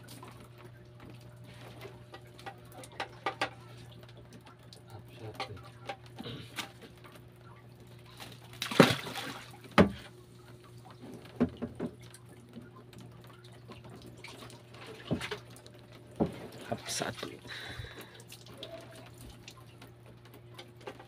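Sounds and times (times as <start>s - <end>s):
water splashing: 8.1s - 12.4s, 13.2s - 19.8s.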